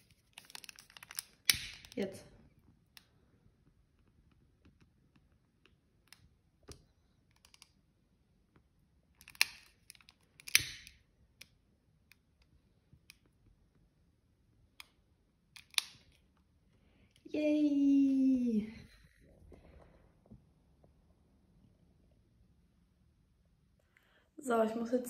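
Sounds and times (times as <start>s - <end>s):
lighter trigger clicking: 10.4s - 10.9s.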